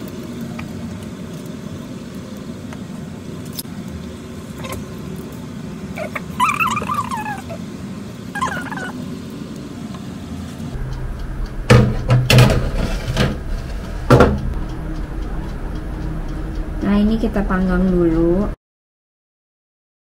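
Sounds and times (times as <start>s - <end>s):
oven hum: 0.0s - 18.6s
short wavering high-pitched sounds: 8.3s - 9.1s
metal tray clanking and scraping: 11.7s - 14.4s.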